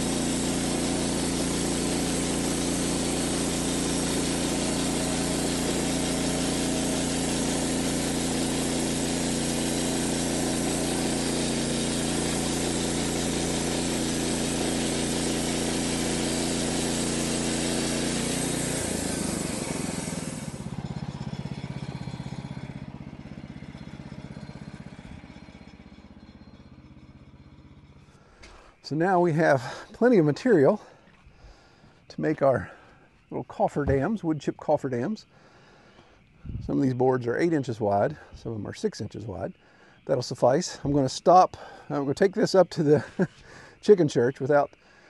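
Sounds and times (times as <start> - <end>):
bandsaw blade sawing through log: 0.0 - 25.8
gas engine running under load: 0.0 - 34.7, 41.5 - 41.9.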